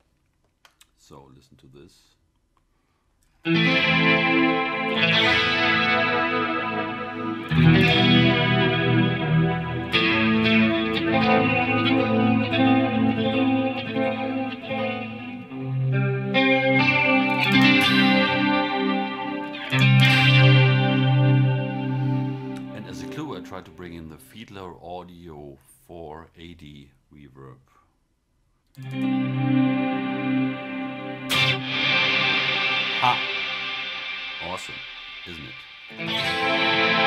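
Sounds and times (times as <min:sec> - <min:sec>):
electric guitar chords with chorus: 0:03.4 - 0:23.8, 0:28.8 - 0:37.0.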